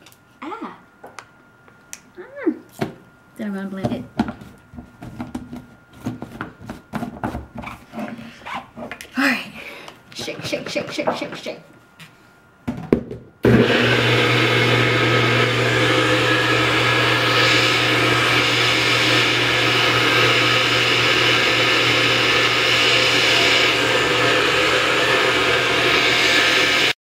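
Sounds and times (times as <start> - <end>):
blender motor running: 13.4 - 27.0.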